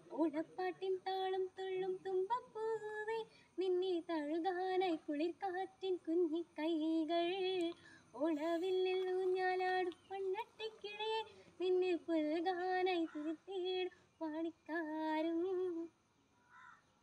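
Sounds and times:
girl singing unaccompanied: 0:00.0 - 0:16.0.

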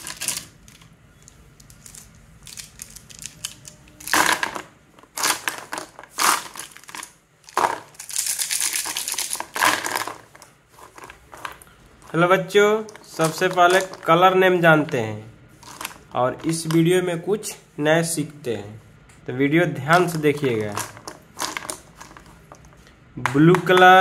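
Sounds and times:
plastic pens clicking together: 0:01.6 - 0:04.2
paper rustling: 0:20.0 - 0:22.8.

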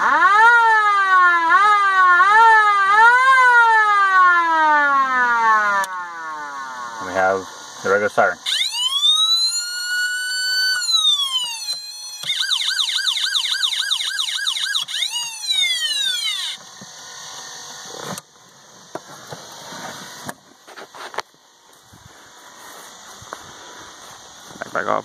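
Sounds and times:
electronic siren wailing and yelping: 0:00.0 - 0:07.4, 0:08.4 - 0:16.6.

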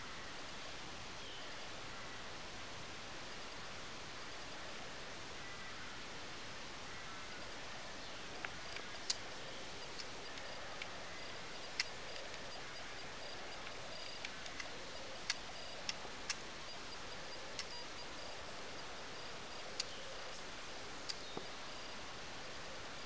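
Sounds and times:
steady hiss: 0:00.0 - 0:23.0
sharp ticks: 0:08.4 - 0:22.0.

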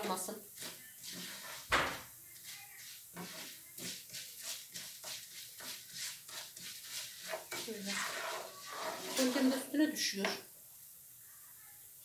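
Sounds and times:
kitchenware clicks and scrapes: 0:03.1 - 0:10.4.

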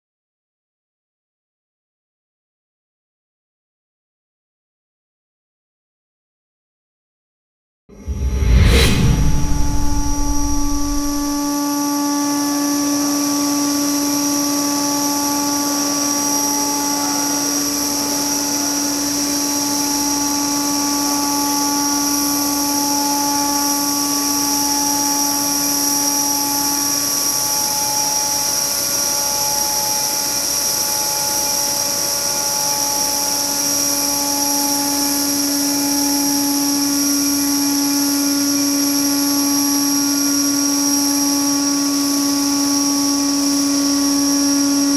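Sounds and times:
high-pitched machine whine: 0:07.9 - 0:44.9
low machine hum: 0:08.0 - 0:11.8.

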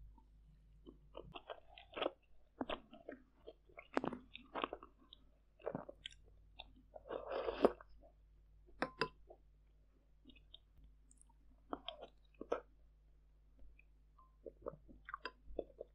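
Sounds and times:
wet chewing and mouth smacks: 0:00.8 - 0:08.2.

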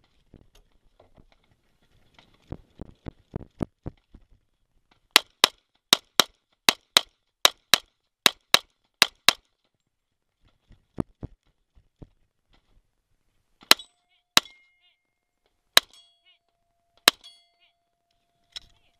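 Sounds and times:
steel target ringing: 0:13.7 - 0:14.8, 0:15.8 - 0:17.8.

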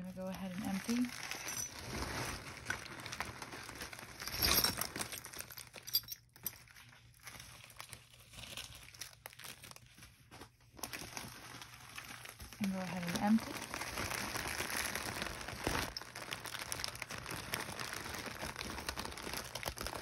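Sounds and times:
plastic bags crinkling: 0:00.0 - 0:20.0
metal jewelry clinking: 0:01.2 - 0:01.8, 0:04.2 - 0:06.7.

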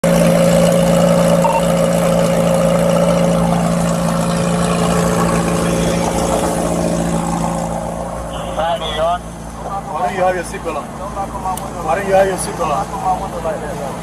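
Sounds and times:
road traffic: 0:00.0 - 0:14.0
vehicle engines idling: 0:00.0 - 0:14.0.

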